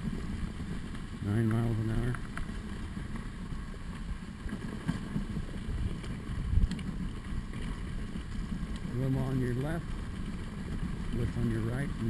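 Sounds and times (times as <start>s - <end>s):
sled runners rumbling on snow: 0.0s - 12.0s
wind on microphone: 4.1s - 12.0s.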